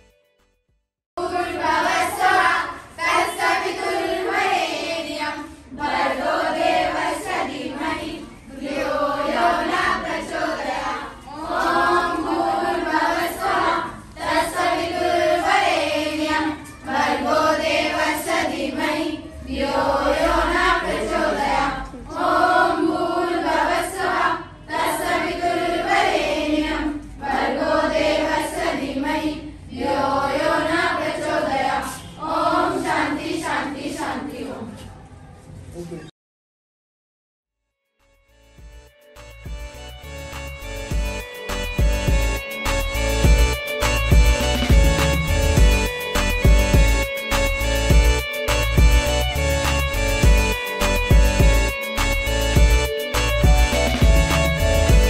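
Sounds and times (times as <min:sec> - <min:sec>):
girls and children singing a prayer: 0:01.2 - 0:35.0.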